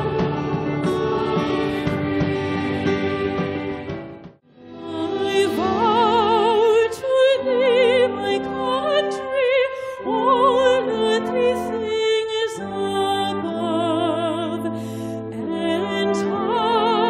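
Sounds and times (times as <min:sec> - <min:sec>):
sustained instrumental accompaniment: 0:00.0 - 0:17.0
woman singing with vibrato: 0:04.8 - 0:14.8, 0:15.4 - 0:17.0.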